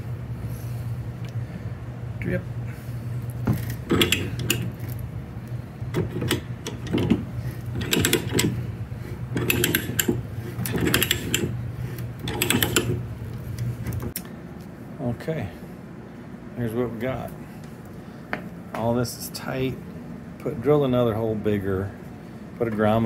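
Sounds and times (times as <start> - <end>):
steady low hum: 0.0 - 23.0
pipe threader ratchet clicking: 3.6 - 4.8, 5.9 - 8.6, 9.3 - 13.0.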